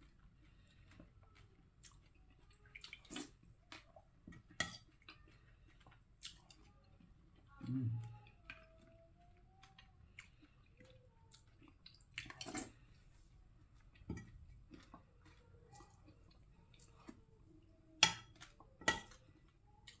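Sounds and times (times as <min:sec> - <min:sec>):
dishes and cutlery clinking: 0:18.0 - 0:19.2.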